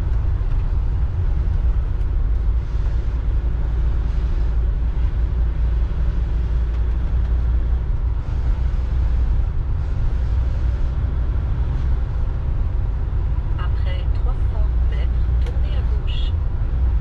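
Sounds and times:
motorhome engine rumble: 0:00.0 - 0:17.0
road noise: 0:00.0 - 0:17.0.

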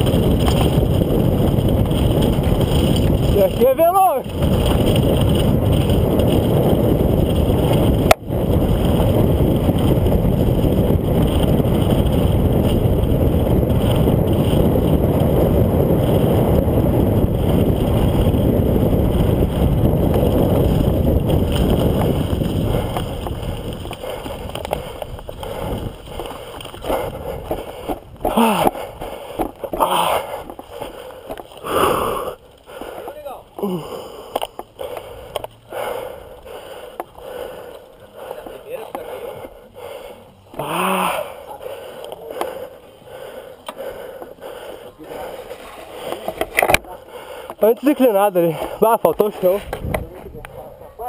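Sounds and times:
wind rushing over microphone: 0:00.0 - 0:32.5, 0:45.0 - 0:51.0
bike tyre rumble on dirt: 0:00.0 - 0:51.0.

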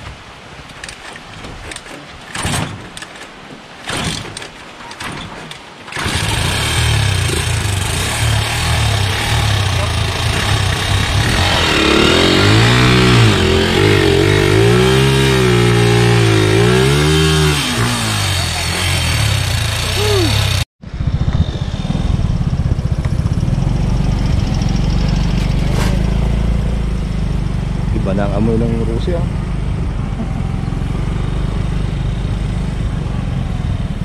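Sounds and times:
motorcycle engine revving: 0:05.9 - 0:34.0
low engine rumble: 0:06.0 - 0:16.6, 0:18.0 - 0:34.0.

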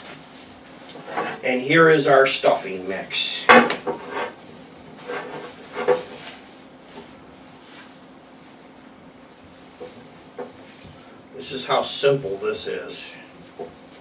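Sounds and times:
faint steady hum: 0:00.0 - 0:14.0
wooden spatula scraping glass bowl: 0:03.9 - 0:04.4, 0:05.0 - 0:06.2.

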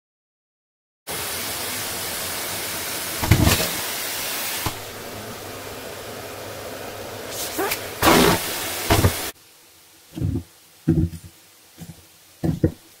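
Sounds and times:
vacuum cleaner running: 0:01.1 - 0:09.4.

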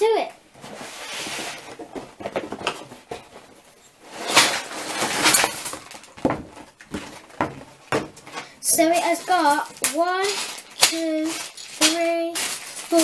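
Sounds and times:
plastic bags rustling and rattling: 0:00.5 - 0:13.0.

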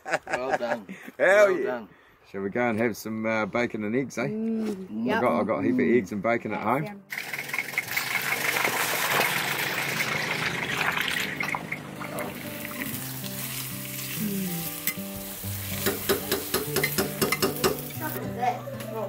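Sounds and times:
eggs sizzling in a pan: 0:07.1 - 0:18.2
background music with held notes: 0:11.6 - 0:19.0
spatula scraping and tapping pan: 0:15.7 - 0:18.0.

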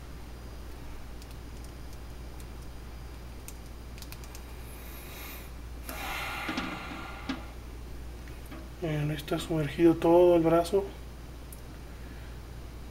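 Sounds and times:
low hum: 0:04.3 - 0:09.5.

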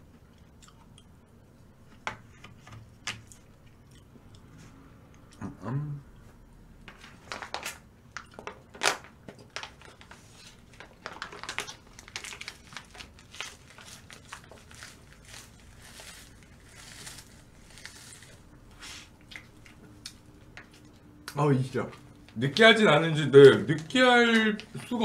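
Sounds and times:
crunching of someone eating: 0:07.4 - 0:20.9.

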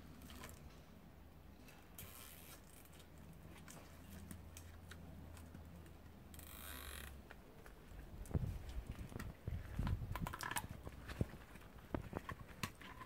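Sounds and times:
zip tie ratcheting zip: 0:02.0 - 0:03.1, 0:06.3 - 0:07.2
zip ties clicking and rustling: 0:02.0 - 0:13.0.

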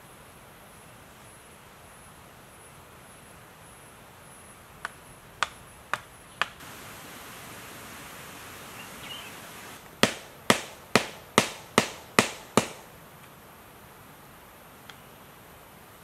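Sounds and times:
steady hiss: 0:00.0 - 0:16.0
tool knocking on wood: 0:10.0 - 0:12.8.

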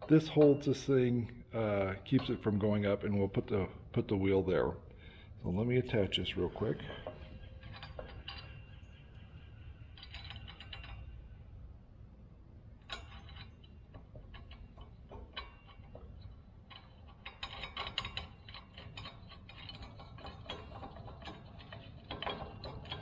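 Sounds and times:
metallic clicks and clinks: 0:05.4 - 0:11.5, 0:12.8 - 0:23.0.

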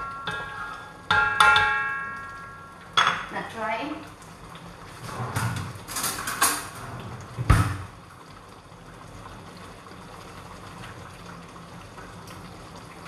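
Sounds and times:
rustles and utensil clatters: 0:05.0 - 0:06.9
sauce simmering hiss: 0:06.8 - 0:13.0.

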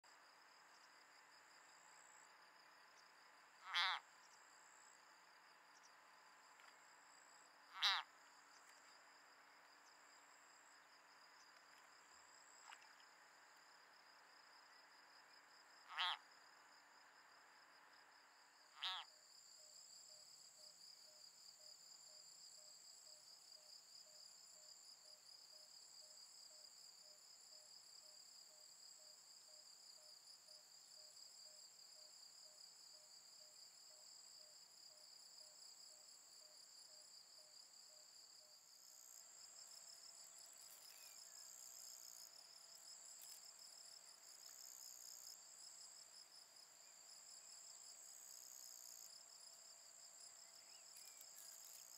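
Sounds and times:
insects trilling: 0:00.3 - 0:17.7, 0:18.6 - 0:19.9, 0:30.1 - 0:51.9
second high insect trill: 0:18.7 - 0:19.2, 0:38.8 - 0:46.1, 0:46.8 - 0:51.9.

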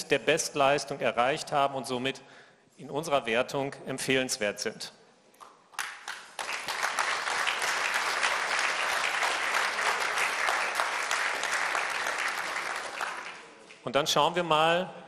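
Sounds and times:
audience applause: 0:05.8 - 0:13.6.

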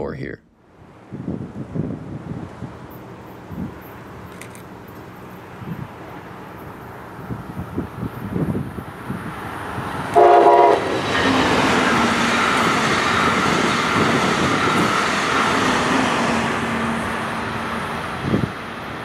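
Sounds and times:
train passing rush: 0:00.6 - 0:19.0
train horn blast: 0:10.1 - 0:12.1.

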